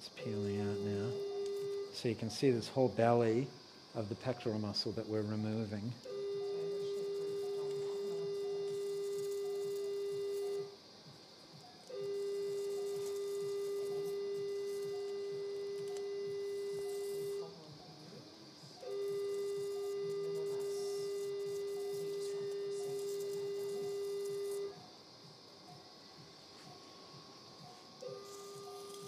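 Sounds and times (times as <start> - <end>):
steady electronic activation tone: 11.8 - 18.0.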